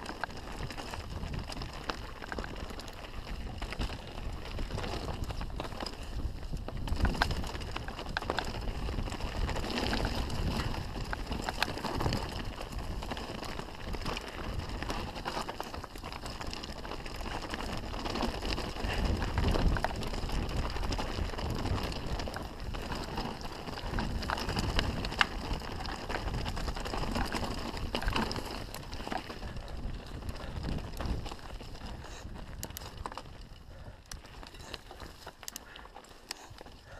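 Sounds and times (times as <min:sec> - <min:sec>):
bike clicks and rattles: 0:00.0 - 0:36.9
tyre and wind noise: 0:00.0 - 0:36.9.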